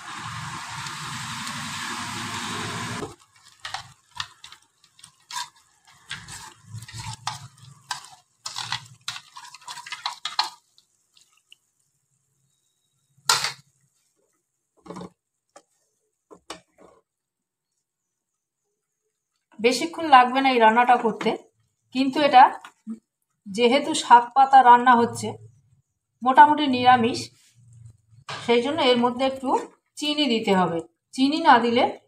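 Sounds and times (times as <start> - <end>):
utensil scraping bowl and pan: 2.9 - 11.4.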